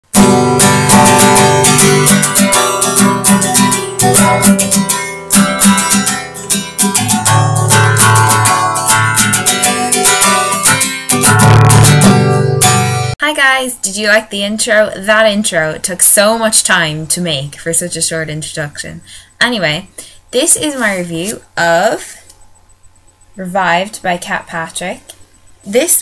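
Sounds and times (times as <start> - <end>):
guitar strumming chords: 0.1 - 13.2.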